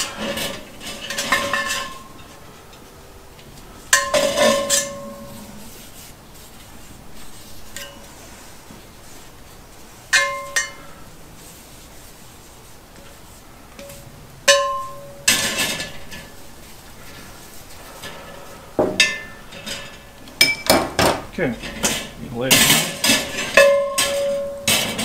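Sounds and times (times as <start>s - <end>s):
pans clanking on metal grate: 0.0s - 2.3s, 3.9s - 5.6s, 10.1s - 11.0s, 13.8s - 16.4s, 18.0s - 25.0s
grating scrape: 4.2s - 9.3s.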